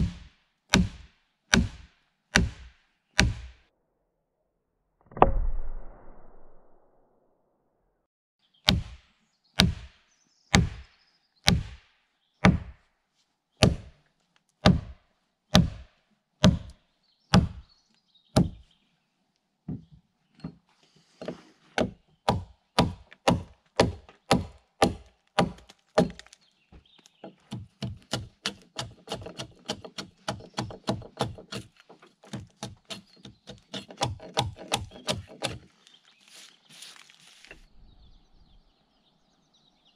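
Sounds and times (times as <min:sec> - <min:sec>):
axe chopping log: 0:00.0 - 0:03.6, 0:08.7 - 0:09.0, 0:09.6 - 0:10.8, 0:11.5 - 0:11.8, 0:12.4 - 0:12.8, 0:13.6 - 0:14.0, 0:14.6 - 0:17.6, 0:18.4 - 0:18.6, 0:21.8 - 0:26.4, 0:27.2 - 0:35.7
hand tool cutting wood: 0:21.0 - 0:37.6.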